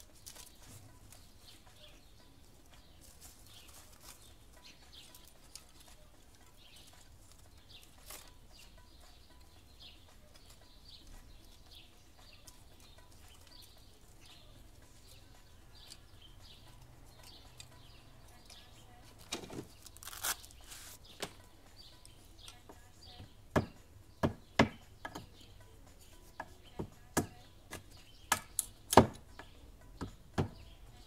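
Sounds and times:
birds chirping: 0.0 - 31.0.

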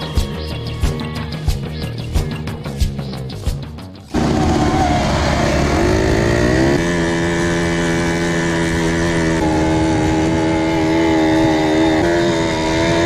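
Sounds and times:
quad bike engine running: 4.1 - 13.0.

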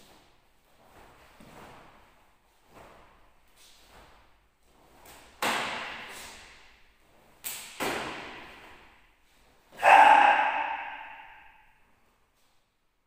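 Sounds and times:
person shouting: 9.8 - 11.5.

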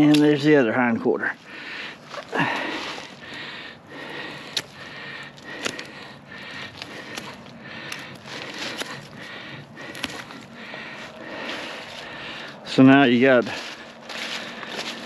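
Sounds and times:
rustling: 4.5 - 12.8, 13.4 - 15.0
knife cutting through hide and meat: 8.2 - 9.2.

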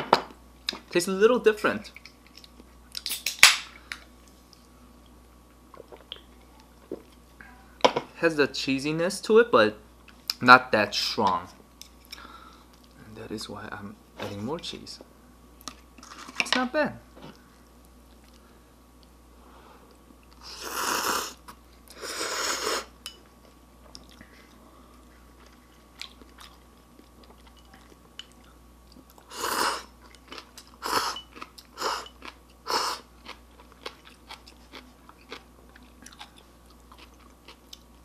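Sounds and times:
soft wet chewing: 1.9 - 3.1, 11.8 - 13.0, 17.4 - 19.2, 23.4 - 38.0
slurping noodles: 20.4 - 22.9.

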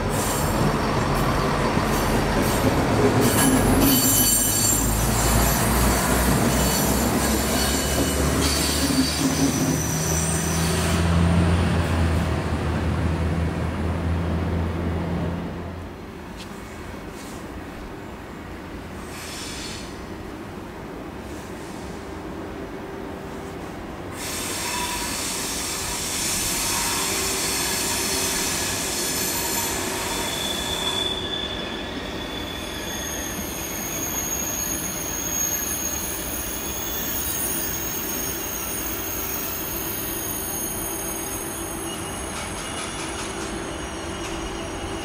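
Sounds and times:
train wheels squealing: 0.0 - 12.2, 19.0 - 20.2, 24.2 - 45.0
loud hiss: 24.2 - 30.8.

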